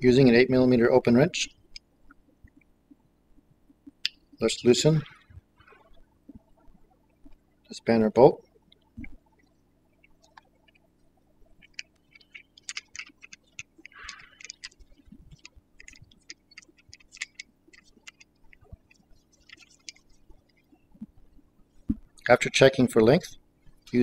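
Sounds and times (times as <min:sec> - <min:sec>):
small clicks and light taps: 0:08.7 - 0:22.4.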